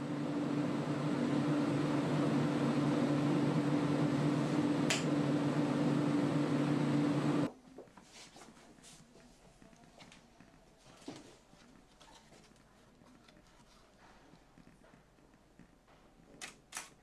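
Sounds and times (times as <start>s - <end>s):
ventilation fan hum: 0.0s - 17.0s.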